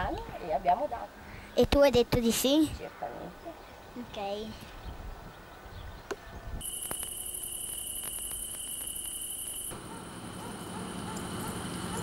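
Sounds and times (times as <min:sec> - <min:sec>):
crickets trilling: 0:06.6 - 0:09.8.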